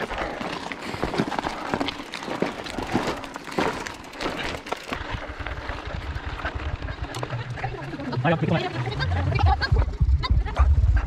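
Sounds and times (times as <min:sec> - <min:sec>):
footsteps crunching on stony trail: 0:00.0 - 0:05.9
bike rattling over rocks: 0:00.0 - 0:08.2.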